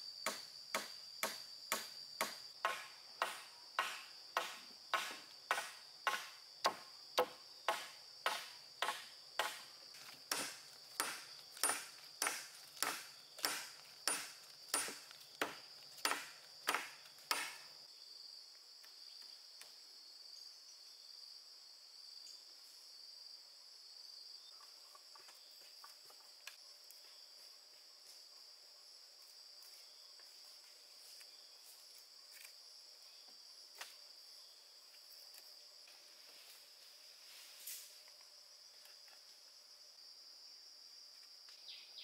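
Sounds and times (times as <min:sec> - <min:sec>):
sharp knocks: 0:00.3 - 0:09.6, 0:10.3 - 0:17.6.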